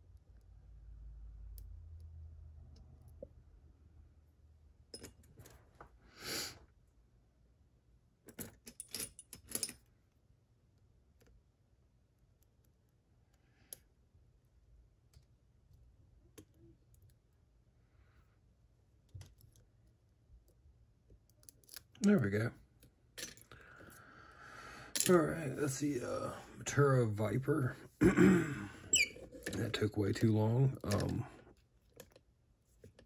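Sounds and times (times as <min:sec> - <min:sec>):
lock-picking tools clinking: 0:08.3 - 0:09.8.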